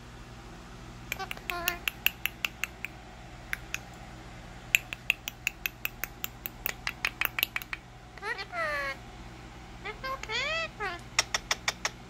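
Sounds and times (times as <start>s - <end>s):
parakeet clicking: 1.1s - 4.0s, 4.7s - 8.3s, 10.0s - 12.0s.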